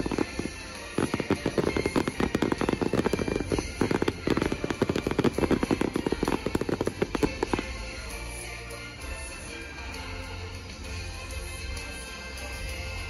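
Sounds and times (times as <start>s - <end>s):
fireworks bangs and crackles: 0.0s - 8.4s.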